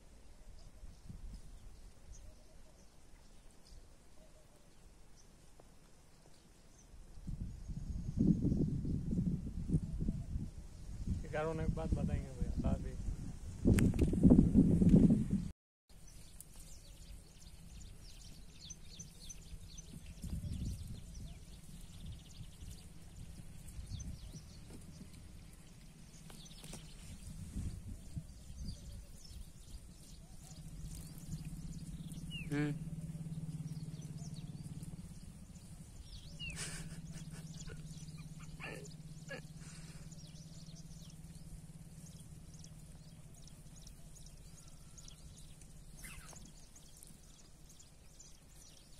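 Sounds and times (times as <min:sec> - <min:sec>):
faint animal calls: 0:30.2 - 0:41.3, 0:43.2 - 0:47.1.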